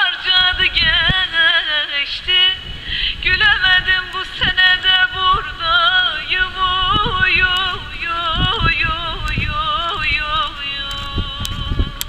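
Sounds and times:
person singing long wavering notes: 0:00.0 - 0:12.0
accompanying folk music: 0:06.9 - 0:12.0.

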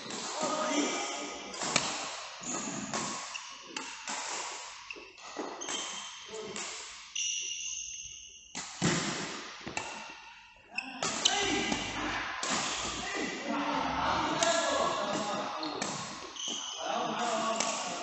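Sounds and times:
racket hitting shuttlecock: 0:00.1 - 0:07.5, 0:08.5 - 0:10.1, 0:11.0 - 0:13.0, 0:17.2 - 0:18.0
shoe squeaks on court floor: 0:02.4 - 0:04.0, 0:04.8 - 0:06.5, 0:07.1 - 0:08.6, 0:15.6 - 0:16.8.

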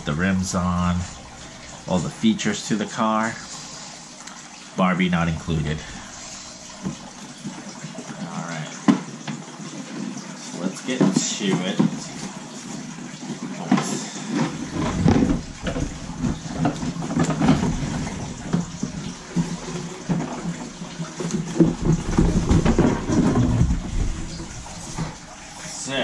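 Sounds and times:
thuds of handling: 0:14.4 - 0:20.6.

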